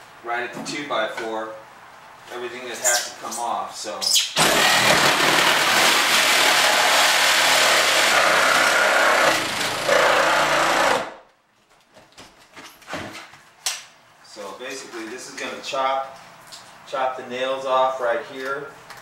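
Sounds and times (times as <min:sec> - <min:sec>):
power saw cutting drywall and wood: 0:04.4 - 0:11.2.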